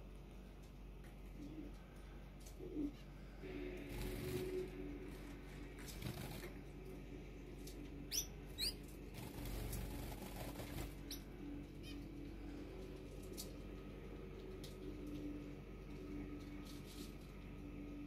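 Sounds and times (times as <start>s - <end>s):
low steady hum: 0.0s - 18.0s
wing flutters: 3.9s - 6.8s, 7.6s - 15.3s
finch chirps: 8.1s - 8.8s.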